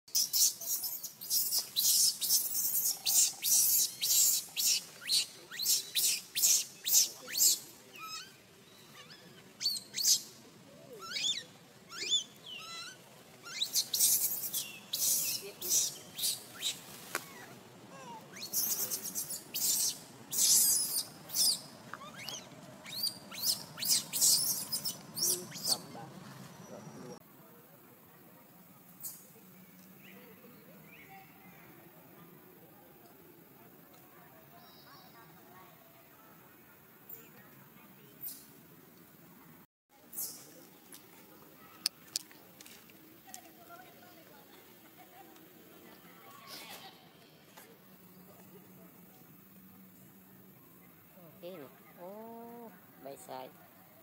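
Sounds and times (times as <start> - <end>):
baby monkey squealing: 0.2 - 8.4, 9.0 - 10.2, 11.0 - 17.4, 18.0 - 25.8.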